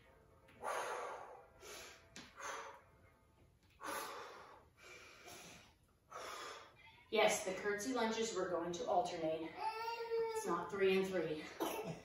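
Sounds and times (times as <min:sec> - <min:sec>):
woman breathing heavily: 0:00.5 - 0:07.1.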